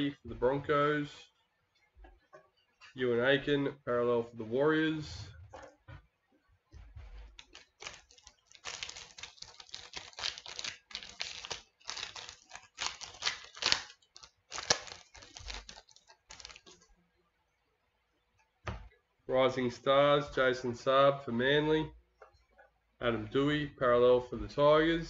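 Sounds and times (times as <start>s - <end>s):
trading cards rustling and clicking: 7.2s - 16.8s
foil wrapper crinkling: 7.3s - 16.8s.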